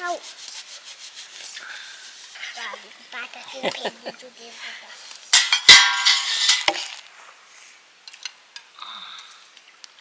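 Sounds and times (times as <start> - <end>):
steel dishes clattering: 5.3 - 6.8.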